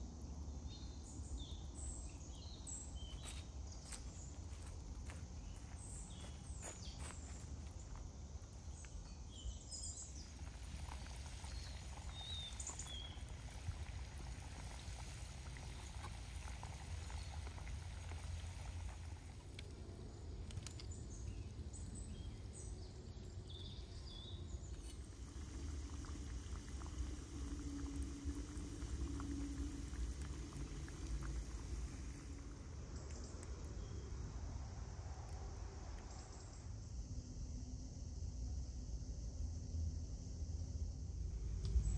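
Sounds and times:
patties sizzling in hot oil: 0:07.0 - 0:33.8
low rumble: 0:39.4 - 0:41.9.

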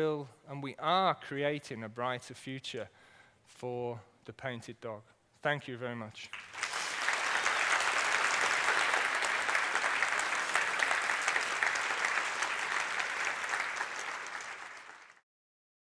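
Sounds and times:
audience applauding: 0:06.3 - 0:15.2.

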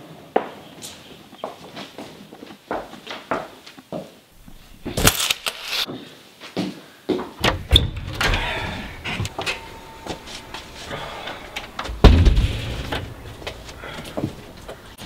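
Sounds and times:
door shutting with a thud: 0:07.4 - 0:09.7, 0:11.6 - 0:13.3.

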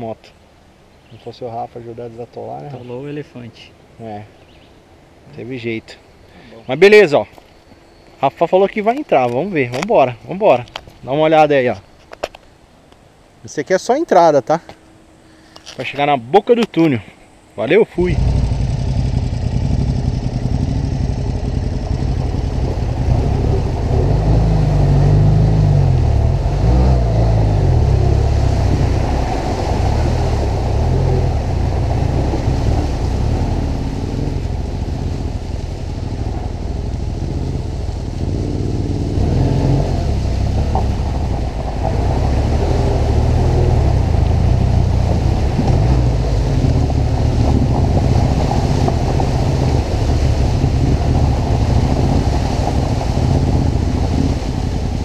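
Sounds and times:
motorcycle engine revving: 0:18.0 - 0:55.0.

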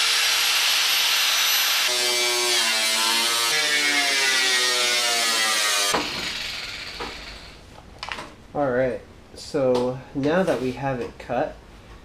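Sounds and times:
grinder cutting steel: 0:00.0 - 0:07.6.

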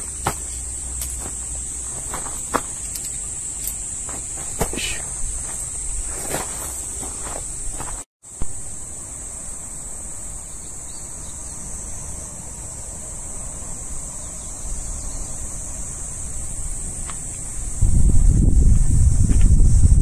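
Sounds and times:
high-pitched insect drone: 0:00.0 - 0:20.0
wind rumble on microphone: 0:17.4 - 0:20.0.

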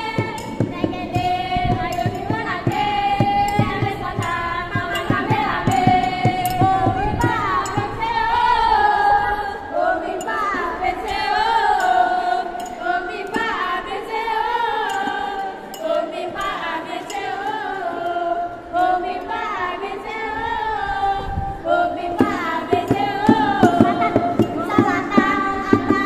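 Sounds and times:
girls singing in unison: 0:00.0 - 0:26.0
drum knocks: 0:22.2 - 0:26.0.

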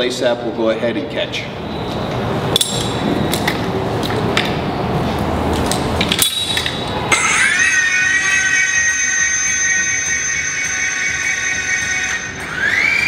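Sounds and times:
metal hardware clicking: 0:02.6 - 0:03.6, 0:05.7 - 0:06.8.

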